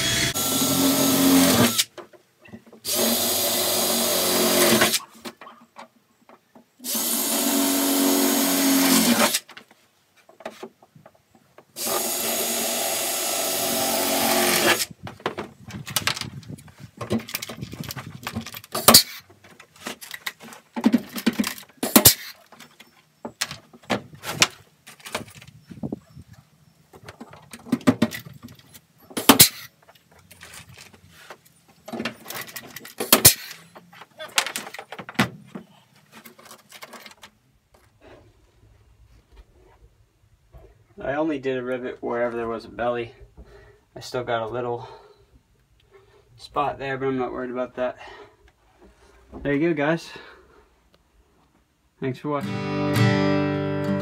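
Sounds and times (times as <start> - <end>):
power drill boring through plastic: 0.0 - 1.9, 2.9 - 5.0, 6.8 - 9.4, 11.8 - 14.9.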